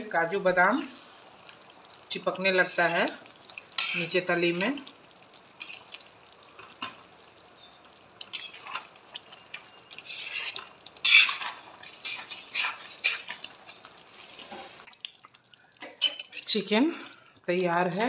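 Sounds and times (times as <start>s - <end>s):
wet gravy stirring: 1.0s - 18.0s
metal spoon scraping a pan: 3.7s - 4.2s, 8.2s - 14.9s, 15.8s - 16.6s.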